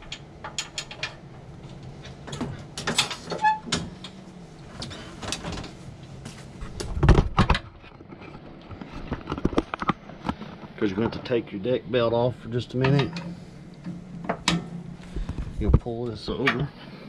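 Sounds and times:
metal linkage clicks and clanks: 0.0s - 4.2s
heavy thump and rattle: 6.6s - 7.7s.

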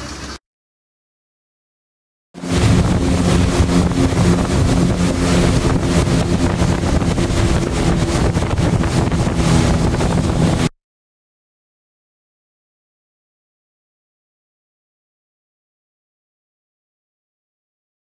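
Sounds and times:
motorboat engine humming: 2.4s - 10.7s
wind buffeting microphone: 2.4s - 10.7s.

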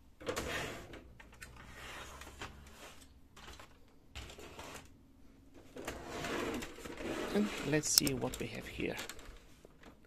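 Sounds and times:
small plastic clicks: 7.9s - 9.4s.

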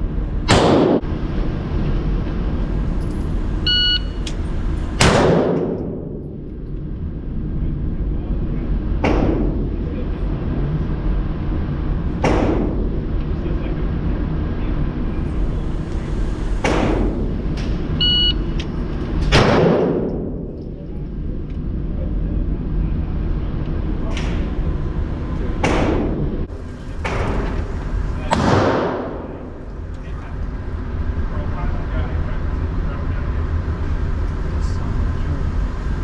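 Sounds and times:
steady low hum: 0.0s - 36.0s
pistol shots echoing indoors: 0.5s - 1.0s, 5.0s - 6.1s, 28.3s - 29.3s
shot timer beep: 3.7s - 4.2s.

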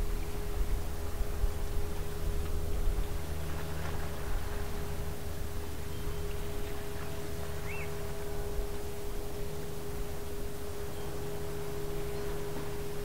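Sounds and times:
constant hum: 0.0s - 13.0s
bird chirp: 5.8s - 8.0s.

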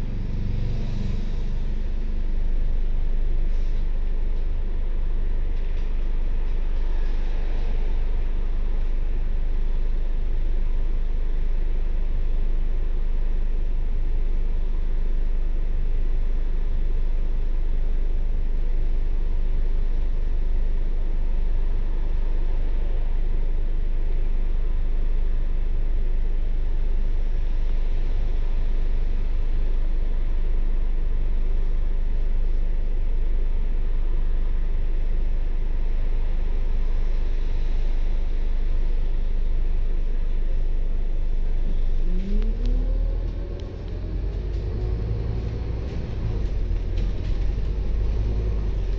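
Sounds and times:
bus engine idling: 0.0s - 12.1s, 40.7s - 48.9s
noisy hiss: 27.2s - 48.9s.

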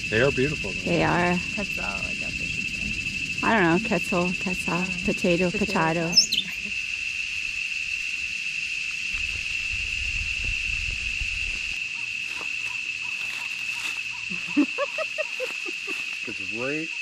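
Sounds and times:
low rumble: 0.0s - 8.4s, 9.0s - 11.8s
cicadas droning: 0.0s - 17.0s.

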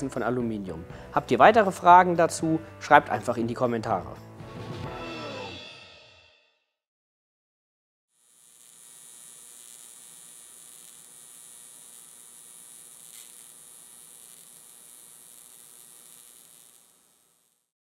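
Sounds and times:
welding arc buzzing: 8.1s - 17.8s.

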